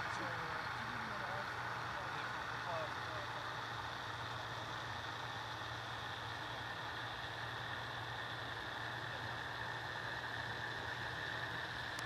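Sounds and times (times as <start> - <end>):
paramotor engine droning: 0.0 - 12.0.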